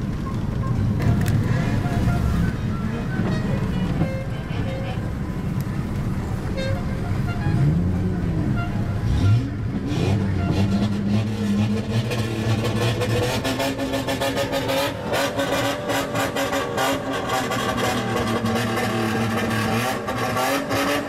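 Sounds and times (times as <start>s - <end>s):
car exhaust revving: 9.0s - 21.0s.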